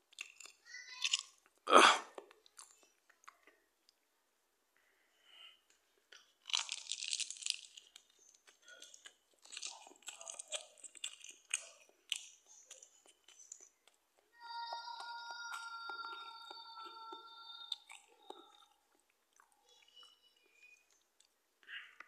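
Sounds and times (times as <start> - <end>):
plastic bag crinkling: 6.5 - 11.4.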